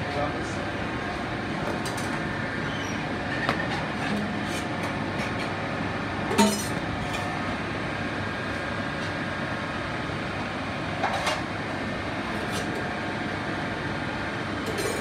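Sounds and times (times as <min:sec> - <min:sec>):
metal utensils clinking on pans: 0:06.4 - 0:07.2
kitchen equipment whirring: 0:10.9 - 0:15.0.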